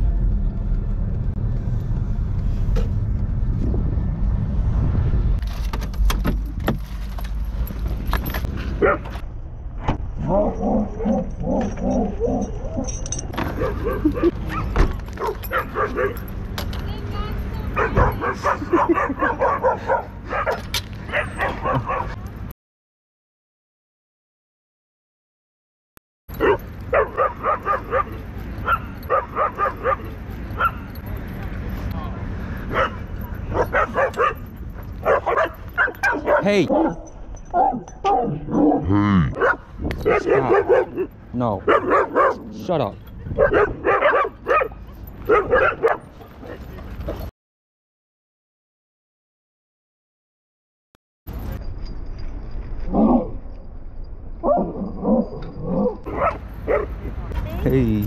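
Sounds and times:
car engine rumble inside cabin: 0.0 - 8.5
low wind rumble: 0.0 - 22.2, 26.6 - 46.2
dog barking high-pitched: 8.8 - 9.1, 13.5 - 16.3, 17.7 - 22.2, 26.4 - 30.9, 32.7 - 42.5, 43.4 - 46.0, 54.4 - 57.1.

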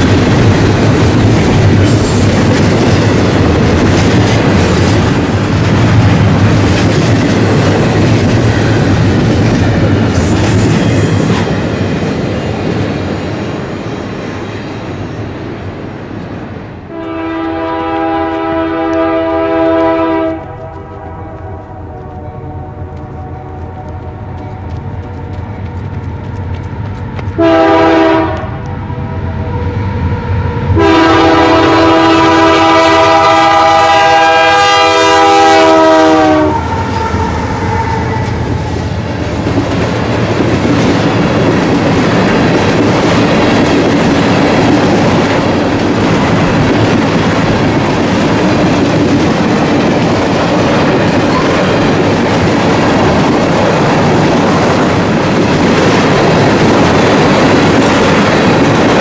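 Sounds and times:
train wheels clacking on rails: 0.0 - 15.5, 19.8 - 28.6, 32.4 - 59.0
train air horn blasts: 16.9 - 24.7, 27.4 - 29.6, 30.7 - 38.5
diesel locomotive engine running: 16.9 - 59.0.

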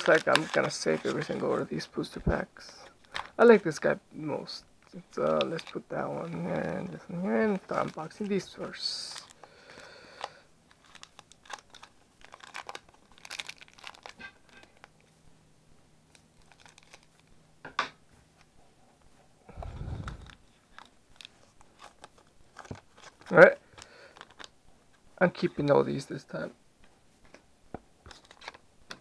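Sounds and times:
foil wrapper crinkling and tearing: 0.0 - 3.5, 4.9 - 14.9, 16.1 - 17.3, 20.0 - 24.5, 28.1 - 29.0.

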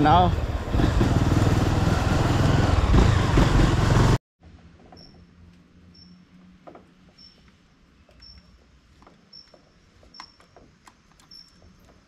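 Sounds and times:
motorcycle engine: 0.0 - 6.6
tyres on cobblestones: 0.0 - 12.0.

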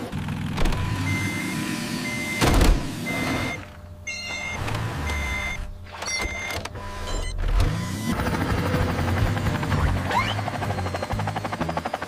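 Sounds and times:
cartoon helicopter rotor chop: 7.5 - 12.0.

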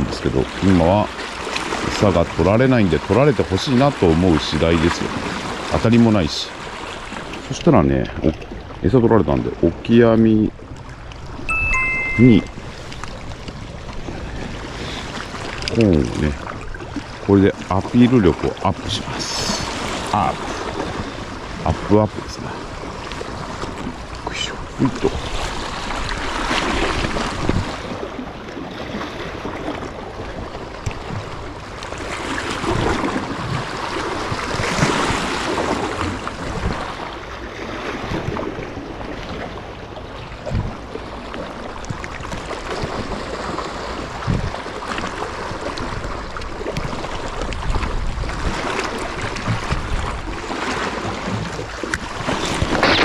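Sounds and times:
sea waves washing on rocks: 0.0 - 39.7, 40.3 - 53.0
wind buffeting microphone: 24.7 - 28.2, 30.2 - 37.0, 44.1 - 44.7, 45.8 - 53.0.

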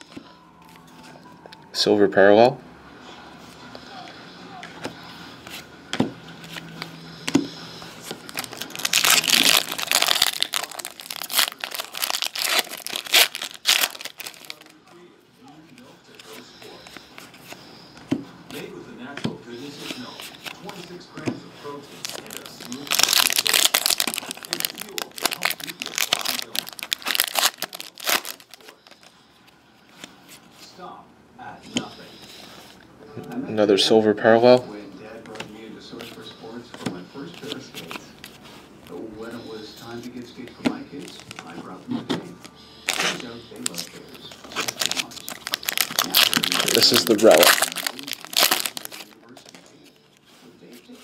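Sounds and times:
foil wrapper crinkling: 8.0 - 14.8, 21.7 - 29.1, 42.8 - 51.0.

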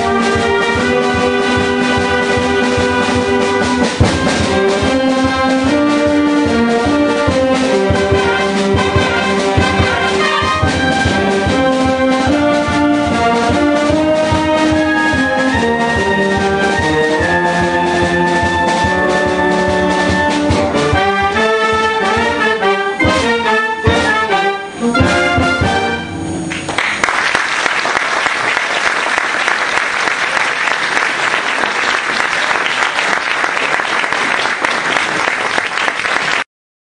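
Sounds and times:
drum strokes: 0.0 - 26.8
wind band playing: 0.0 - 27.5
audience applauding: 26.5 - 36.5.

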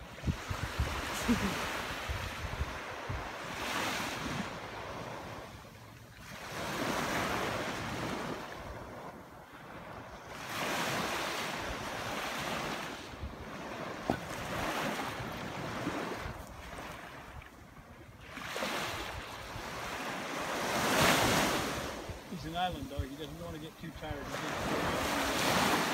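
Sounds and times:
wind on microphone: 0.0 - 5.4
surf washing onto beach: 0.0 - 5.6, 18.3 - 25.9.

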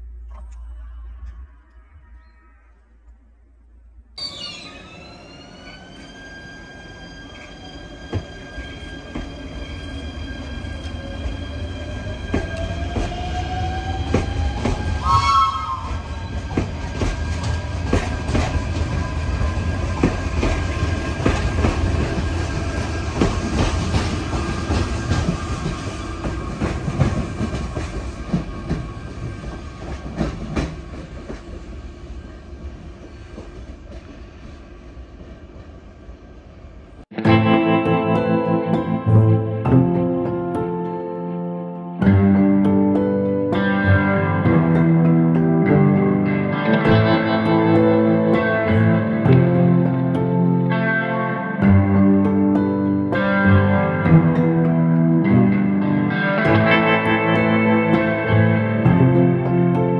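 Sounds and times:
electric train whine: 0.0 - 59.9
short warbling high tone: 4.2 - 5.9
wheels clacking over rail joints: 15.9 - 31.9.

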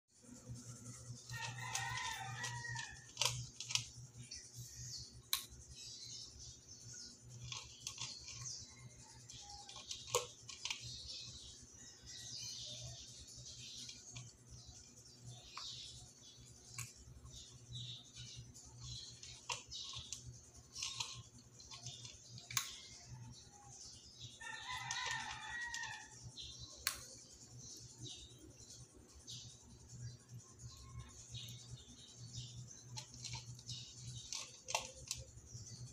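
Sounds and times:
cat crunching dry kibble: 1.2 - 4.2, 7.3 - 11.4, 18.8 - 22.7, 32.6 - 35.4
rooster crowing: 1.3 - 3.1, 24.4 - 26.2
sharp clicks: 18.8 - 22.9, 26.8 - 27.3.

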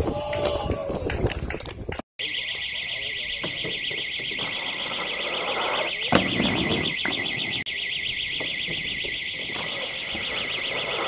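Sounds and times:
electronic alarm warbling: 2.2 - 11.0
skateboard wheels rolling on concrete: 4.4 - 7.5, 8.7 - 11.0
skateboard clack: 5.4 - 7.2.

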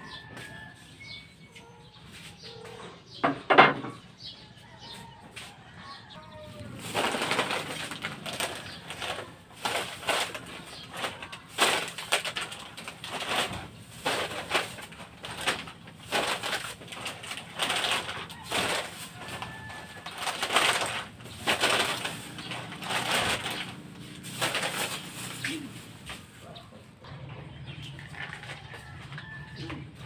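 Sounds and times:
plastic bag crinkling: 6.6 - 26.6.

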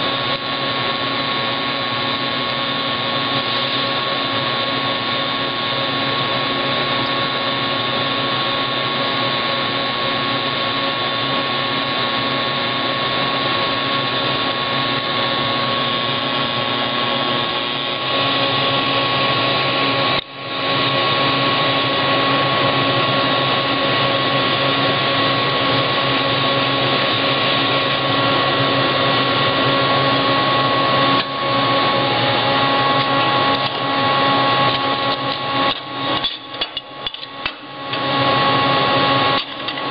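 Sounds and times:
machine whir and hiss: 3.1 - 4.4.

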